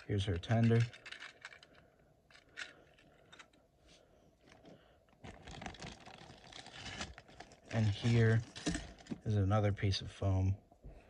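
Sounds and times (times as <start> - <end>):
plastic bag crinkling: 4.5 - 9.3.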